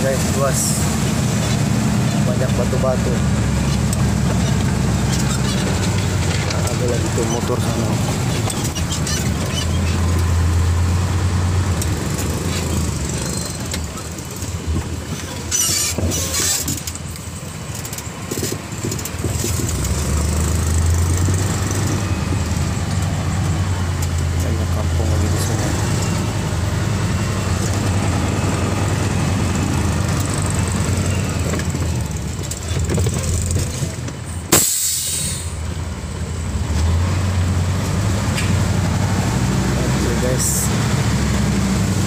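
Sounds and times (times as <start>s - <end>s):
diesel truck engine running: 0.0s - 42.0s
hissing burst: 34.5s - 35.6s.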